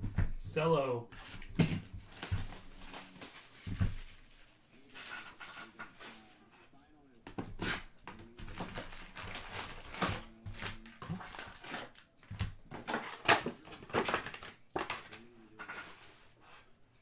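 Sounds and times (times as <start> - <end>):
cellophane packs crinkling: 1.2 - 5.4, 8.1 - 15.3.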